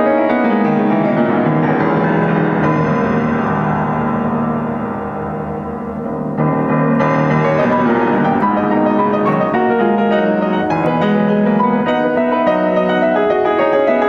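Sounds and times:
solo grand piano: 0.0 - 14.0.

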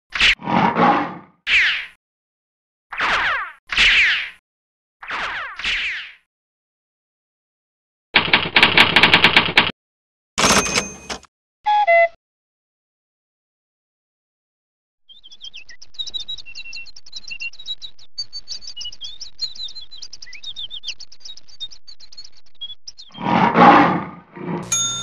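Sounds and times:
birds chirping: 15.1 - 24.6.

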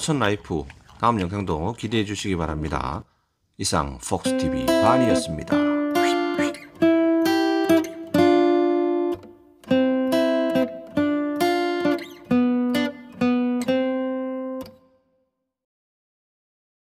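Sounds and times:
guitar chords strummed: 4.2 - 14.9.

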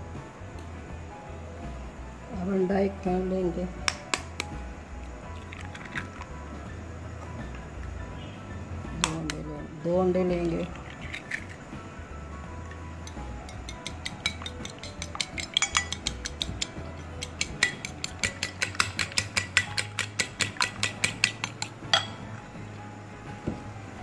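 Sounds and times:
fork clicking against plate: 13.0 - 22.1.

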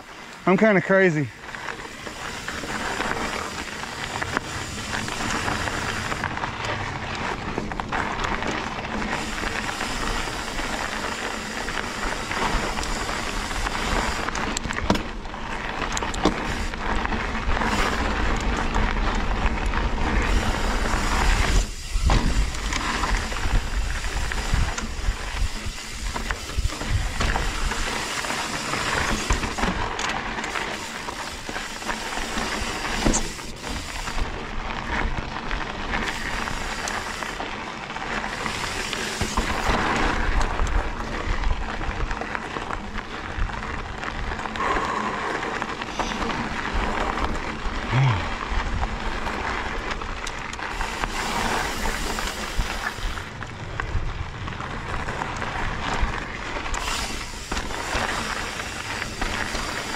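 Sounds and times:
bike tyres rolling on rocky trail: 0.0 - 59.9
bike knocks and rattles: 1.6 - 34.2, 38.0 - 44.3.

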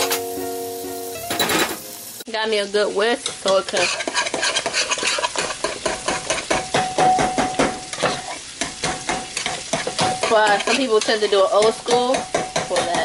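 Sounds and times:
whisk scraping a metal pot: 3.2 - 6.8, 7.9 - 13.0.

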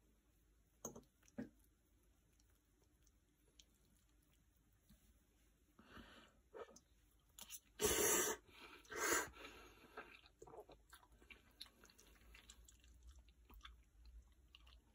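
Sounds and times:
person chewing: 8.6 - 14.9.

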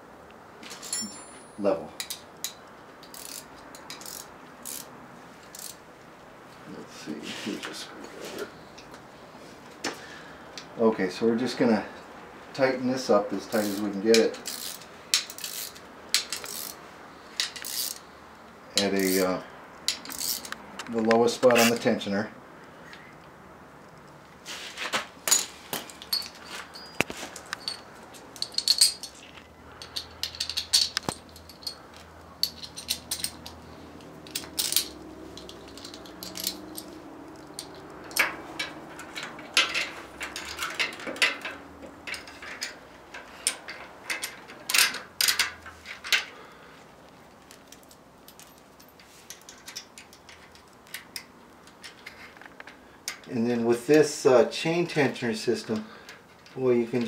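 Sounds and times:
metallic clinks of wrench and bolts: 0.8 - 4.9, 13.5 - 16.8, 17.4 - 18.0, 19.9 - 20.6, 25.3 - 46.3.

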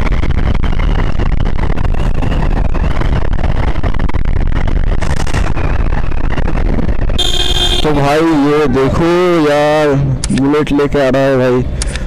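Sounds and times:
wind rumbling over microphone: 0.0 - 11.8
motorcycle engine running: 6.0 - 8.2
faint high whine: 7.2 - 9.9.

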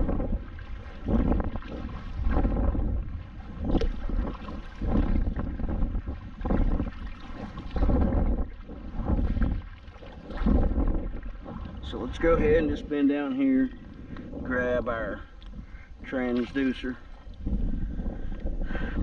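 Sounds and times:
paddle strokes in water: 0.0 - 19.0
wind on microphone: 0.0 - 19.0.

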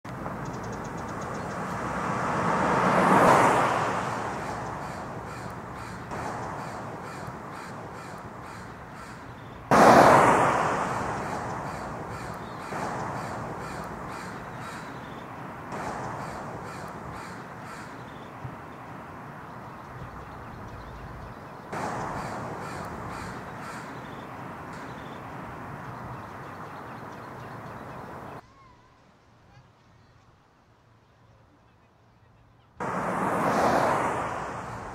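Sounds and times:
rising whoosh: 9.7 - 14.5.

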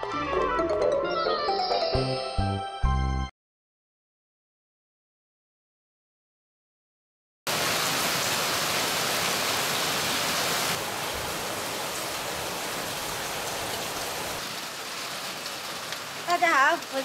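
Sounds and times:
heavy rain on wet ground: 7.5 - 17.0.

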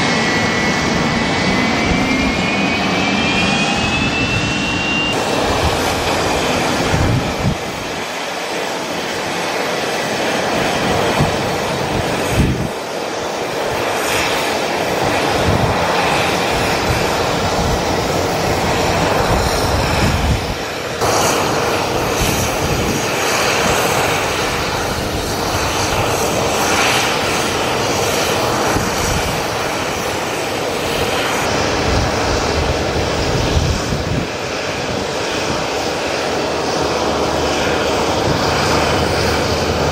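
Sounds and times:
jet engines running: 0.0 - 39.9.

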